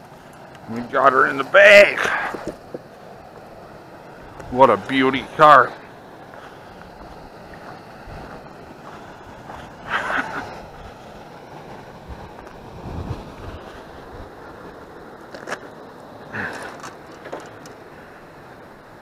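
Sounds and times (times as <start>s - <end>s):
wind buffeting microphone: 1.8s - 5.6s, 6.6s - 15.3s
scuffing noise: 6.3s - 9.8s.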